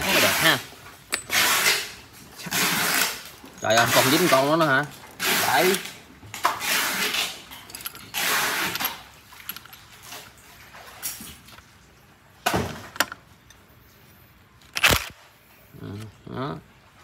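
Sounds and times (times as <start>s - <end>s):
metal parts scraping: 0.0s - 4.6s, 5.2s - 10.0s, 14.6s - 15.2s.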